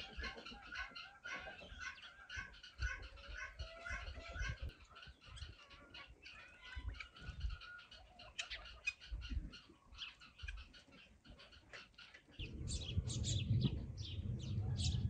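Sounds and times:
hens clucking: 0:00.0 - 0:13.2
birds calling: 0:00.0 - 0:15.0.

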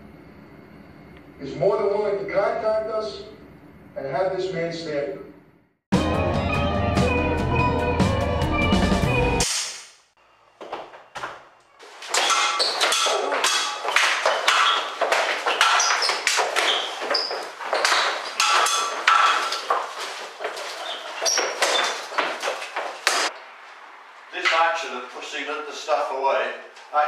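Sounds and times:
swords clashing: 0:11.8 - 0:23.3.

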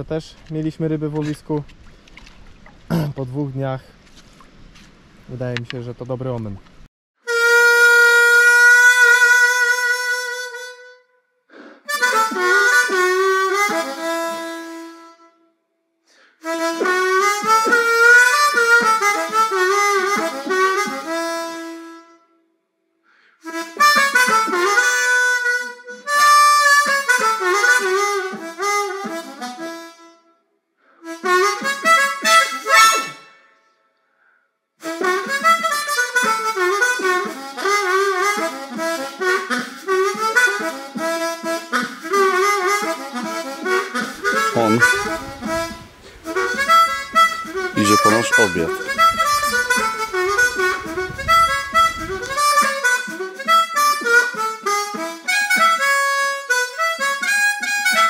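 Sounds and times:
harmonica music: 0:07.2 - 0:15.4, 0:16.1 - 0:22.4, 0:23.1 - 0:33.8, 0:34.8 - 0:58.0.

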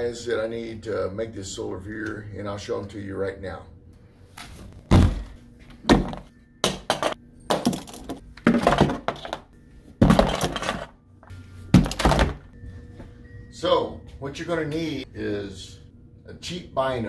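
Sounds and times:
objects thudding into cardboard box: 0:04.9 - 0:06.3, 0:07.6 - 0:09.4, 0:10.0 - 0:10.9, 0:11.7 - 0:12.4.

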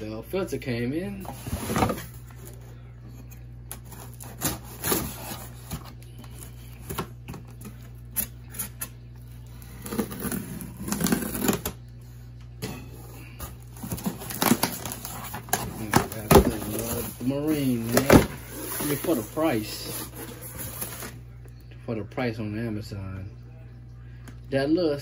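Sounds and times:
cardboard rustling: 0:01.2 - 0:02.7, 0:03.7 - 0:08.0, 0:09.5 - 0:11.7, 0:13.4 - 0:21.2.

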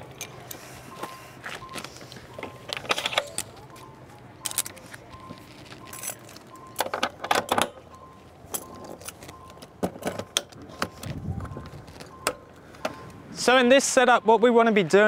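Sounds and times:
air hose couplings clicking: 0:00.1 - 0:03.6.

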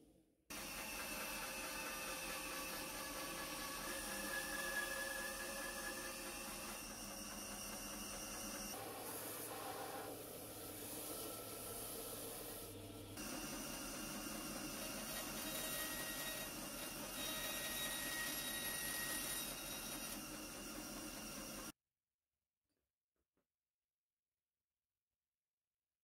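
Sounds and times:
bandsaw cutting wood: 0:00.5 - 0:21.3
belt sander sanding wood: 0:00.5 - 0:21.6.

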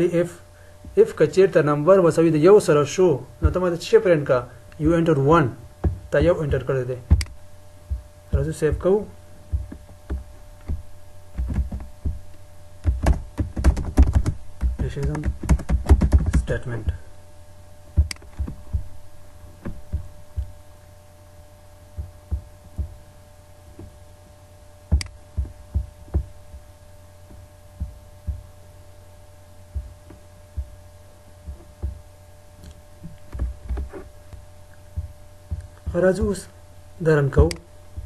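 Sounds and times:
steady electrical hum: 0:00.0 - 0:38.0
computer mouse clicks and thumps: 0:09.5 - 0:16.5, 0:18.0 - 0:18.9, 0:24.9 - 0:26.6, 0:31.5 - 0:32.0, 0:32.6 - 0:34.1.

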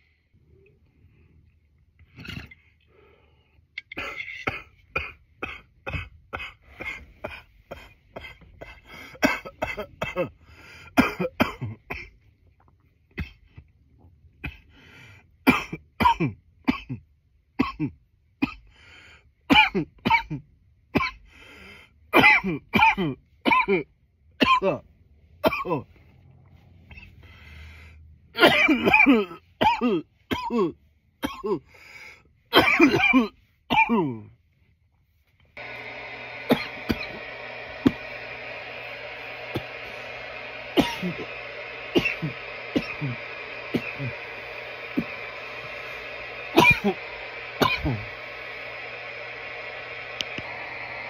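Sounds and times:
man coughing: 0:04.0 - 0:12.2, 0:15.4 - 0:18.7, 0:19.5 - 0:21.2, 0:22.1 - 0:24.8, 0:25.4 - 0:26.0, 0:28.4 - 0:31.8, 0:32.5 - 0:34.3, 0:36.4 - 0:38.3, 0:39.3 - 0:48.4.

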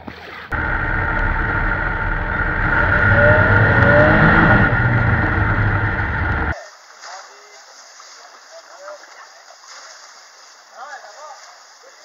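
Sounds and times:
snowmobile engine running: 0:00.5 - 0:06.6.

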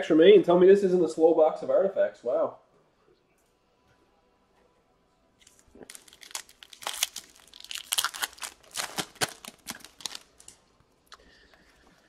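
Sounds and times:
wrapper tearing and crinkling: 0:05.4 - 0:10.6.

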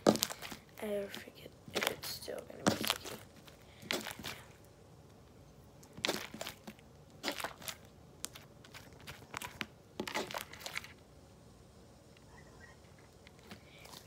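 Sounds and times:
slime crackling and popping: 0:00.0 - 0:04.6, 0:05.8 - 0:11.0.

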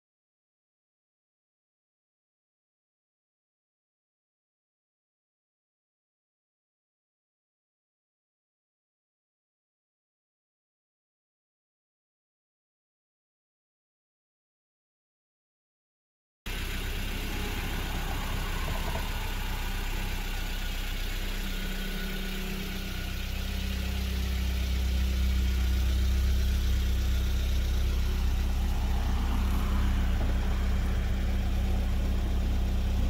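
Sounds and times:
car engine idling: 0:16.5 - 0:33.0.

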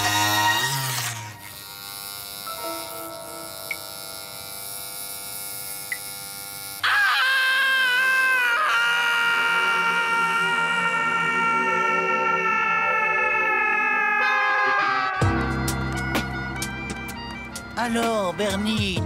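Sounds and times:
electric hair clippers buzzing: 0:00.0 - 0:11.3, 0:14.8 - 0:19.0
cartoon music: 0:10.7 - 0:19.0.

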